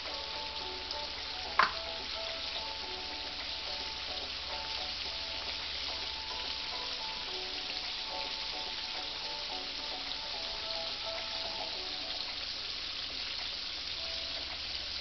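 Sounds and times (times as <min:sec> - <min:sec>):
pork chops sizzling in skillet: 0:00.0 - 0:15.0
sharp tap: 0:01.6 - 0:01.8.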